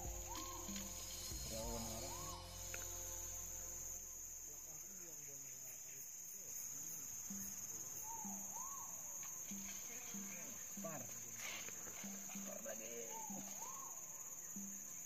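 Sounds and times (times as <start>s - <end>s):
short low notes: 0.0s - 5.1s
faint swooping tones: 0.0s - 15.0s
insects droning: 0.0s - 15.0s.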